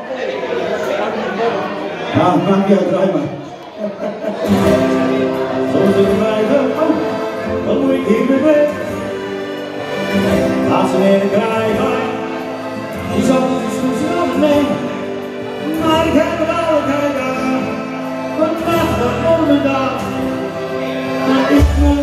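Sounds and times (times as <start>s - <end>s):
instrumental backing music: 4.4s - 22.0s
person singing live: 10.5s - 22.0s.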